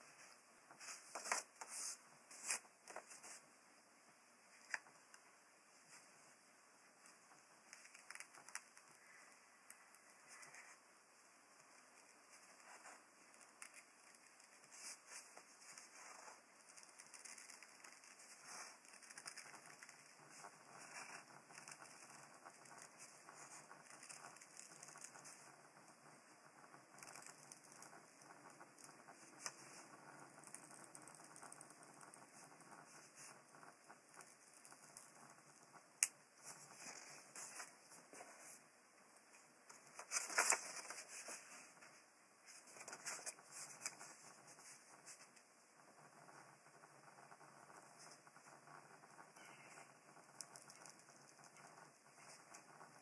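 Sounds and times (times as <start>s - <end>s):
paper rustling: 0.7s - 3.4s, 36.4s - 38.6s, 39.7s - 45.3s.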